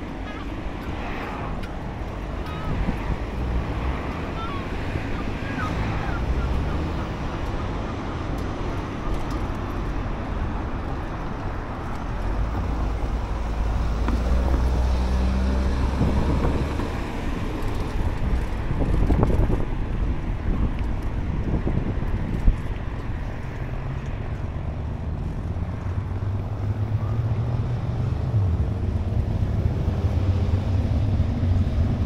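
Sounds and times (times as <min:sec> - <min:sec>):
car traffic passing: 0:00.0 - 0:32.0
wind rumbling on microphone: 0:00.0 - 0:32.0.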